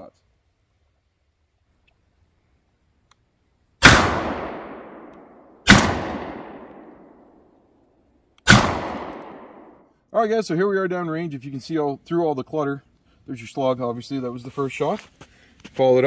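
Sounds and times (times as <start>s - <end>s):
shotgun shots: 3.8s - 7.3s, 8.4s - 9.8s.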